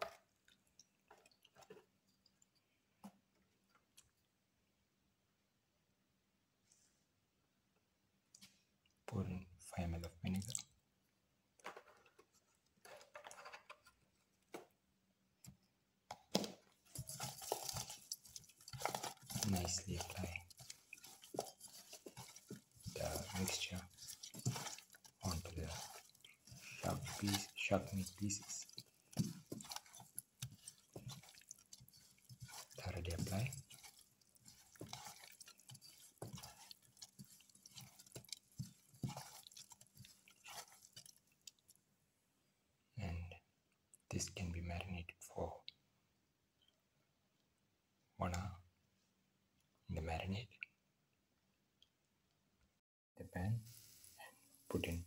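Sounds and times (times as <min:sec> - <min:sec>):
hand squelching in marinade: 0:16.8 - 0:41.8
soft rustle: 0:16.8 - 0:41.8, 0:53.4 - 0:55.0.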